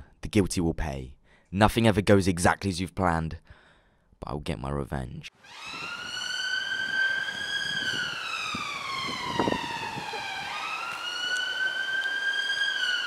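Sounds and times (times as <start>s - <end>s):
siren wailing: 5.4s - 13.0s.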